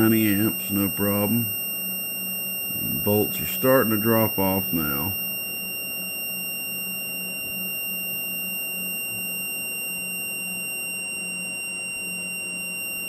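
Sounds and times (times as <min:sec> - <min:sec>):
low hum: 0:00.0 - 0:01.6, 0:02.5 - 0:05.2
cooling fans running: 0:00.0 - 0:05.3
high-pitched beep tone: 0:00.0 - 0:13.0.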